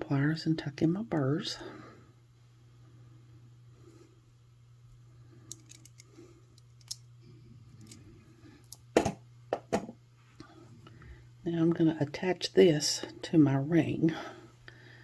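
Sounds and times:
steady low hum: 0.0s - 15.0s
light clicks of pliers and beads: 5.5s - 7.0s.

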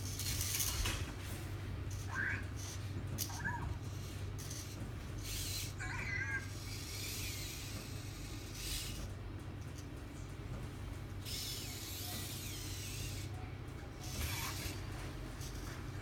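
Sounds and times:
toy robot chirpy electronic sounds: 1.9s - 9.1s, 11.2s - 13.3s, 14.0s - 14.8s
robot motors whirring: 1.9s - 9.2s, 11.2s - 13.4s, 14.0s - 16.0s.

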